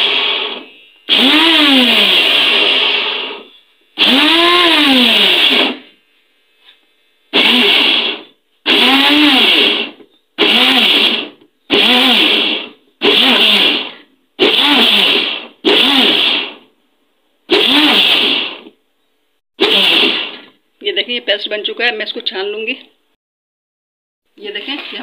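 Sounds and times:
blender motor whining: 0.0 - 5.9, 7.3 - 16.7, 17.5 - 18.8, 19.6 - 20.6.

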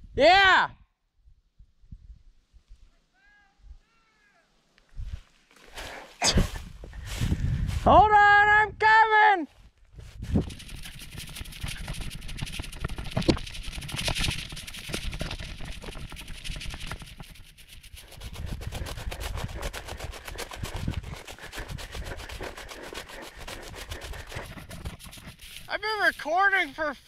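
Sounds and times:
footsteps through dry grass: 4.8 - 8.2, 9.5 - 27.0.

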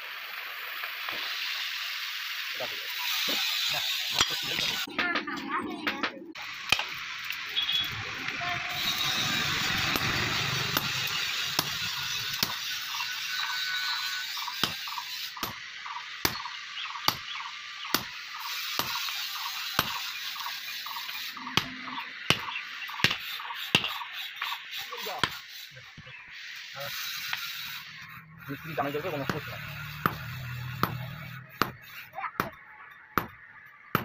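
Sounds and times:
steady hiss: 0.0 - 4.9
hammer striking chisel on hot steel: 4.1 - 5.2, 6.7 - 7.4, 8.7 - 15.6, 16.2 - 24.6, 25.2 - 25.5, 29.2 - 34.0.

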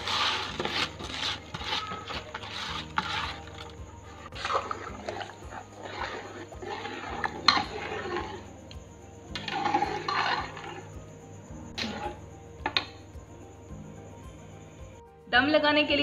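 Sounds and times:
spoon scraping a pot: 0.0 - 8.5, 9.3 - 10.9, 11.8 - 12.9
liquid sloshing in a pot: 0.0 - 8.6, 9.3 - 10.9.

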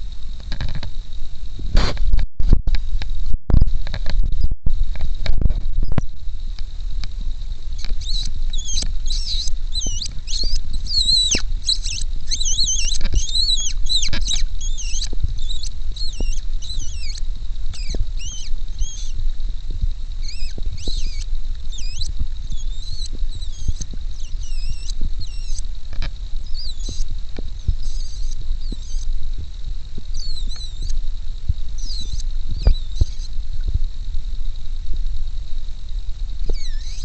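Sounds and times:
low rumble: 0.0 - 36.6
high-pitched mouse-like squeaks: 7.8 - 19.2, 20.2 - 29.1, 30.1 - 31.0, 31.8 - 33.4, 36.4 - 37.0.

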